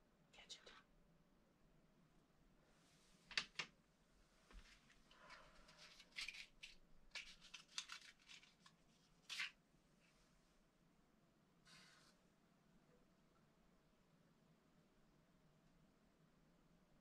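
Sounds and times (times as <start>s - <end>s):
hands scratching and rustling: 4.5s - 9.6s.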